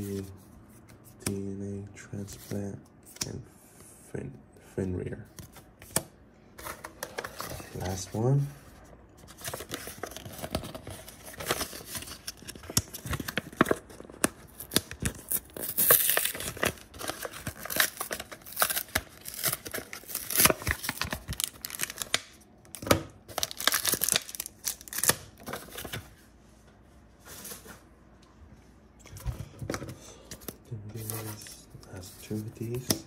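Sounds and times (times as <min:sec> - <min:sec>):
plastic crinkling: 0:23.3 - 0:26.0.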